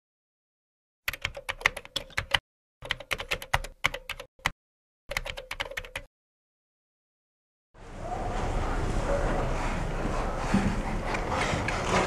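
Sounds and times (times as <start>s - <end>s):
keyboard typing clicks: 1.1s - 6.1s.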